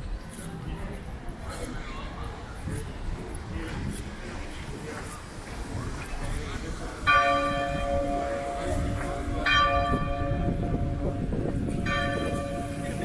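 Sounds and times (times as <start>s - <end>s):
bell tolling: 11.8s - 13.0s.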